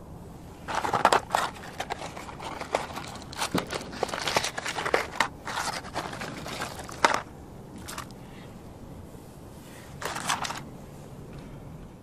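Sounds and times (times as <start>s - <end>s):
paper and foil rustling: 0.7s - 8.1s, 10.0s - 10.6s.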